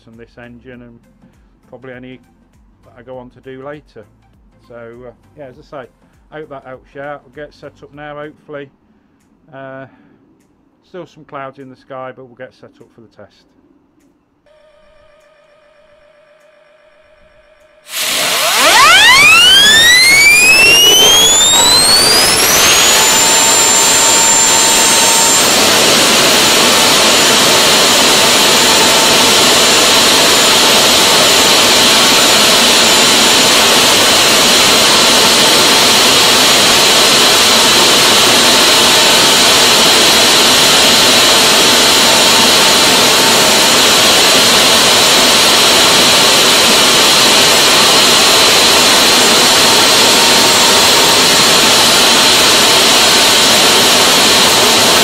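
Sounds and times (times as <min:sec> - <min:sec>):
high turbine whine: 0:14.5 - 0:55.0
jet engine roaring: 0:17.9 - 0:55.0.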